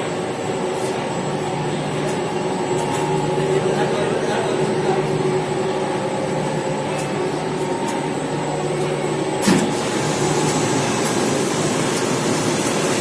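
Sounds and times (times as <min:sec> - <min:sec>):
laundry machinery droning: 0:00.0 - 0:13.0.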